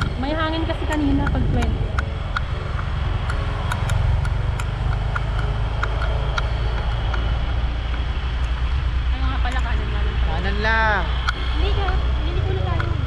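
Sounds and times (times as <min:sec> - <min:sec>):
motorcycle engine running: 0:00.0 - 0:13.0
wind rushing over microphone: 0:00.0 - 0:13.0.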